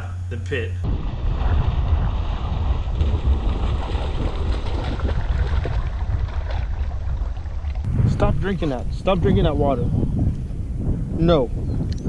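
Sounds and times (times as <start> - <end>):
wind buffeting microphone: 0.8 - 12.0
dog splashing through water: 1.3 - 7.7.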